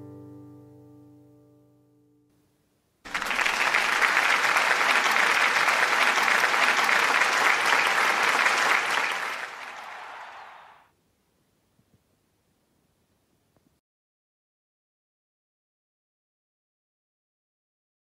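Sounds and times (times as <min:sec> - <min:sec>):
applause: 0:03.1 - 0:10.9.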